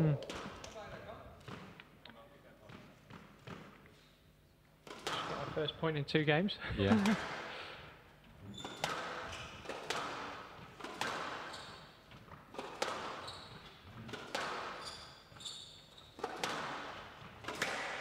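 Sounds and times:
squash ball hits echoing: 4.8 - 5.7, 6.9 - 7.5, 8.5 - 15.3, 16.2 - 18.0
shoes squeaking on wooden floor: 8.4 - 9.4, 11.4 - 16.4.

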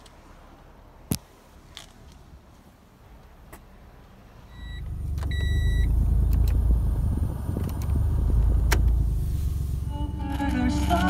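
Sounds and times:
beeps: 4.5 - 6.4
low rumble: 4.6 - 11.0
sharp clicks: 6.2 - 6.7, 7.5 - 9.0.

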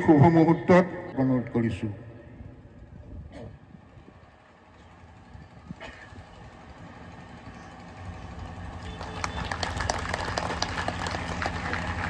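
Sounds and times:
audience clapping: 8.7 - 12.0.

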